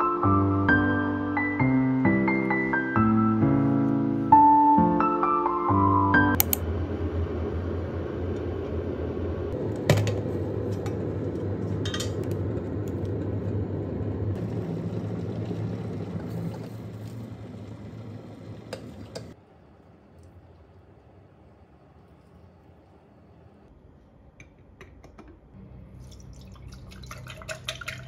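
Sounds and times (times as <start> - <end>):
electric kettle heating water: 6.4 - 23.7.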